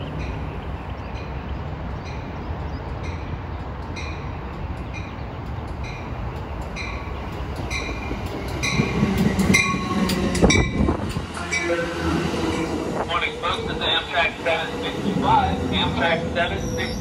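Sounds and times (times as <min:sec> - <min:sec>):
train cars rumbling: 0:00.0 - 0:17.0
train wheel and brake noise: 0:04.7 - 0:17.0
train bell ringing: 0:06.8 - 0:14.2.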